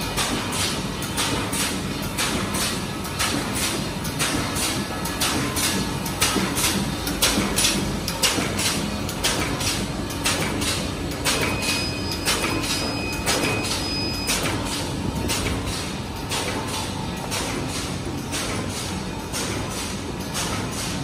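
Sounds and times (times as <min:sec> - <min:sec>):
machine clacking: 0:00.0 - 0:21.0.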